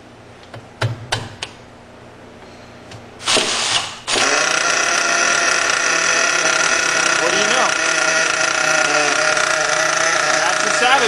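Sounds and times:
engine cranking burst: 3.2 - 11.0
model engine running: 4.2 - 11.0.

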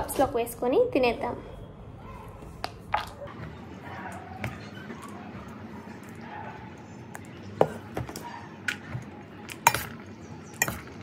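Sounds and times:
spoon clinking against metal pot: 9.6 - 11.0.

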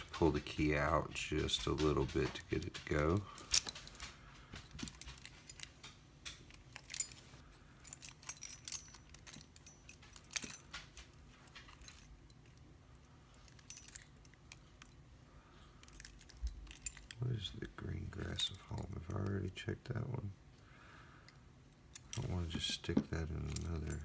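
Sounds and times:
keys jingling in a lock: 0.0 - 15.1, 15.8 - 19.4, 21.8 - 24.0.

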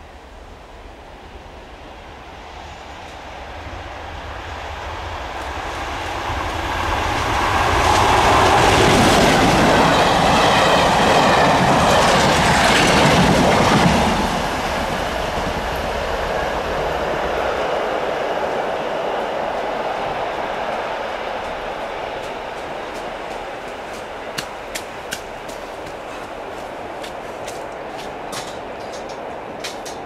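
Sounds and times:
diesel locomotive engine: 0.0 - 30.0
wheels clattering over rail joints: 22.2 - 30.0.

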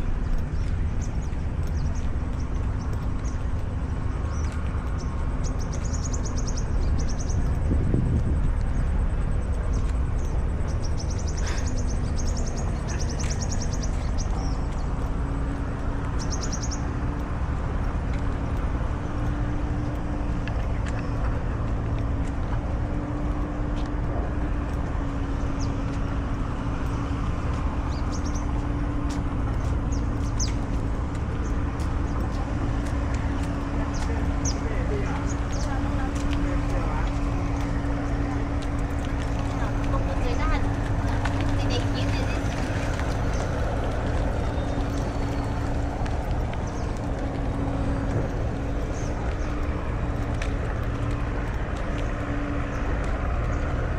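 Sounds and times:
birds chirping: 0.0 - 53.9
low engine hum: 0.0 - 53.9
road traffic rumble: 0.0 - 53.9.

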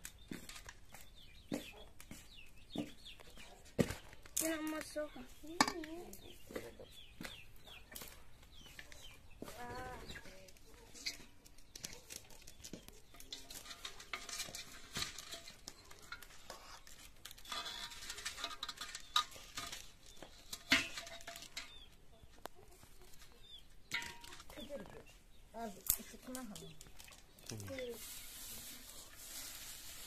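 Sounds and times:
twigs clacking against metal pot: 0.0 - 2.2, 2.8 - 30.0.

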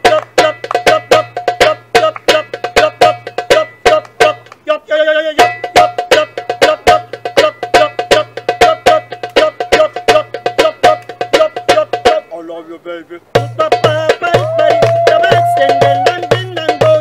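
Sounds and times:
goblet drum slaps: 13.8 - 17.0
wavering vocal note: 14.1 - 16.6.

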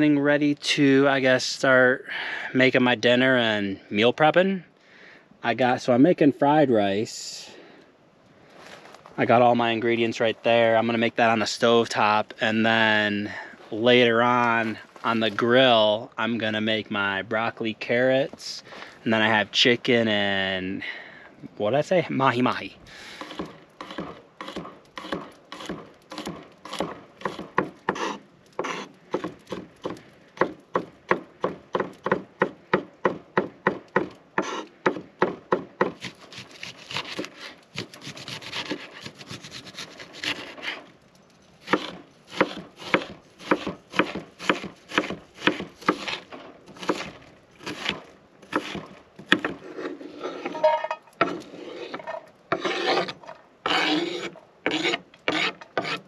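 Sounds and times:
knife slicing and scraping: 36.0 - 40.9, 41.6 - 56.0
knife chopping on wooden board: 41.7 - 46.2, 46.8 - 49.6.

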